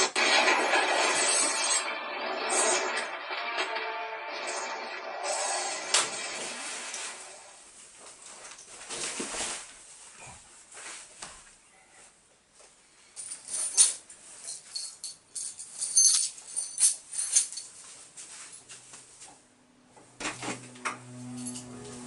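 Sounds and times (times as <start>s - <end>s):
cloth rustling: 6.6s - 11.4s
keys jingling: 13.2s - 17.8s.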